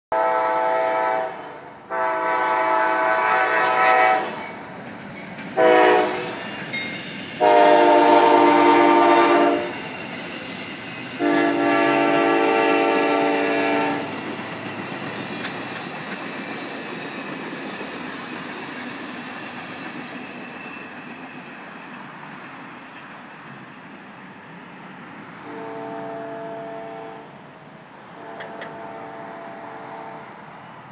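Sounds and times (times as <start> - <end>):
locomotive horn blasts: 0.1 - 4.4, 5.6 - 6.4, 7.4 - 9.7, 11.2 - 14.1, 25.4 - 27.3, 28.2 - 30.3
passenger train passing: 0.1 - 30.9.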